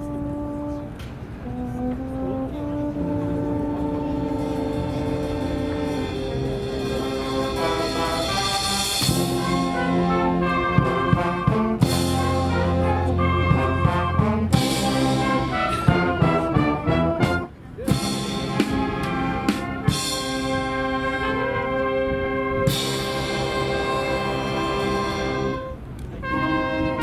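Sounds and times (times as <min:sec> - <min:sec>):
wind band playing brass music: 0:00.0 - 0:27.0.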